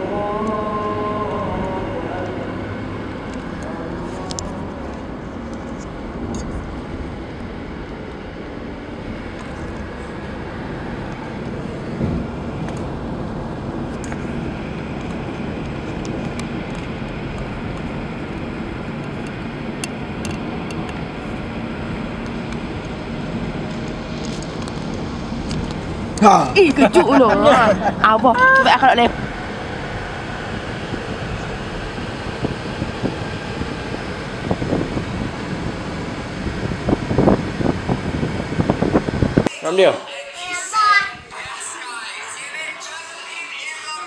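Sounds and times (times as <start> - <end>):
car cabin road and engine noise: 0.0 - 42.7.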